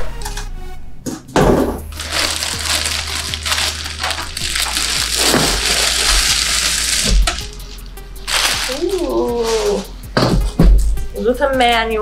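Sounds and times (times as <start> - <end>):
plastic bag crinkling: 1.9 - 9.9.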